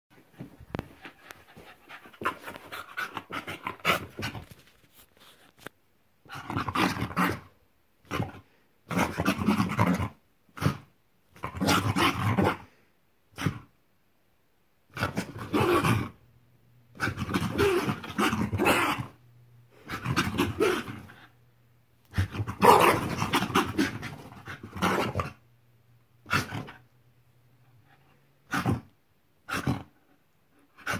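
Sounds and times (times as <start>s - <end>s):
dog growling: 16.9s - 19.2s, 19.8s - 21.3s.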